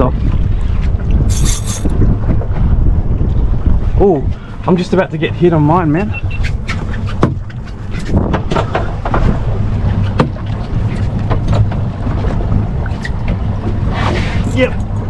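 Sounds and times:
boat engine low hum: 0:00.0 - 0:15.0
wind buffeting microphone: 0:00.0 - 0:15.0
sharp knocks and slaps: 0:06.7 - 0:09.4, 0:10.1 - 0:10.6.

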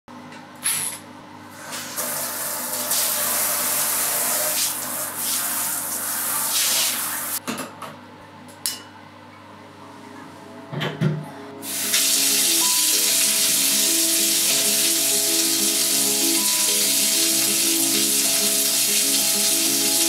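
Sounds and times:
water running into bathtub: 0:01.7 - 0:07.4, 0:11.6 - 0:20.0.

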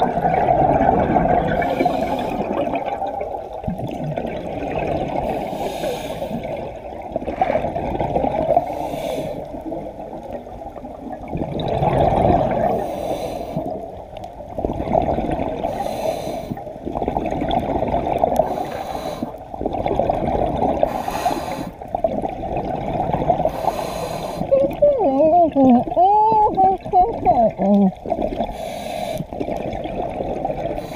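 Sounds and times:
exhaled bubbles gurgling: 0:00.0 - 0:30.9
regulator hiss on inhale: 0:01.6 - 0:02.6, 0:05.3 - 0:06.6, 0:08.6 - 0:09.6, 0:12.7 - 0:13.8, 0:15.6 - 0:16.7, 0:18.4 - 0:19.5, 0:20.8 - 0:21.8, 0:23.4 - 0:24.5, 0:28.4 - 0:29.4.

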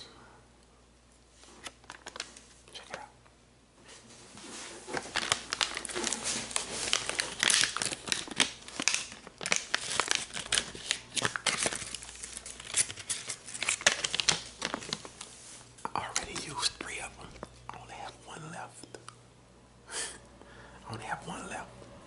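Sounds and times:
foil pouch crinkling: 0:01.6 - 0:02.5, 0:04.8 - 0:17.6.

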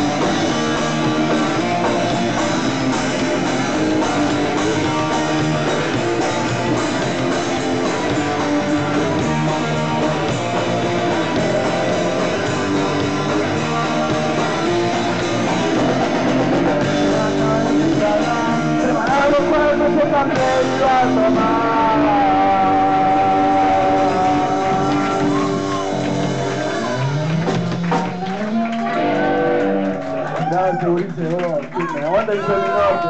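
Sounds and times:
electric guitar: 0:00.0 - 0:31.0
punk rock band playing: 0:00.0 - 0:31.3.

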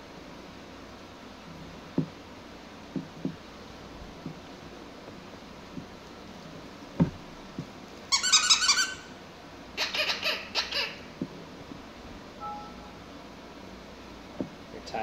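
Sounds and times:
soft thump: 0:07.0 - 0:07.7
short high squeaks: 0:08.1 - 0:09.2.

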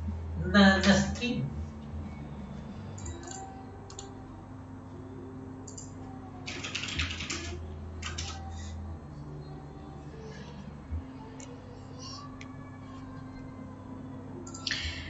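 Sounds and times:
low steady hum: 0:00.0 - 0:15.0
keyboard typing: 0:03.0 - 0:04.1, 0:05.7 - 0:05.9, 0:06.5 - 0:08.4.

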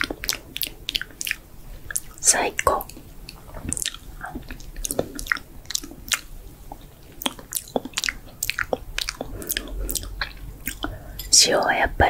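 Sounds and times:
mouth chewing sounds: 0:00.0 - 0:11.8
wet lip smacks: 0:07.2 - 0:11.0.

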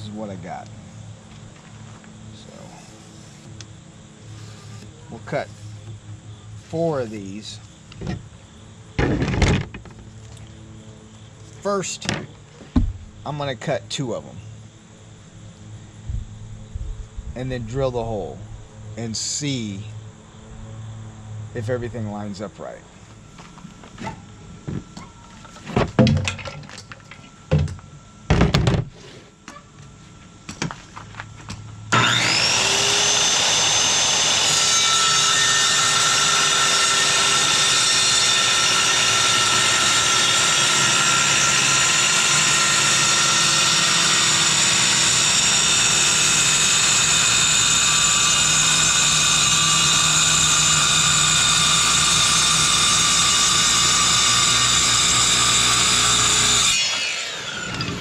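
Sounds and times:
circular saw cutting: 0:02.4 - 0:06.0, 0:31.9 - 0:58.0
knocks and clunks on board: 0:09.0 - 0:10.0, 0:12.0 - 0:13.0, 0:25.6 - 0:26.7, 0:27.5 - 0:28.9.

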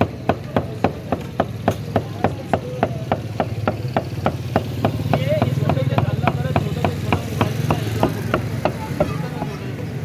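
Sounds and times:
cleaver chopping meat on wood: 0:00.0 - 0:09.2.

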